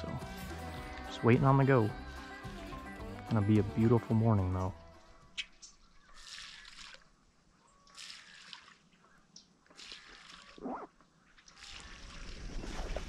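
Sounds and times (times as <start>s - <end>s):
water sloshing and dripping: 4.9s - 13.0s.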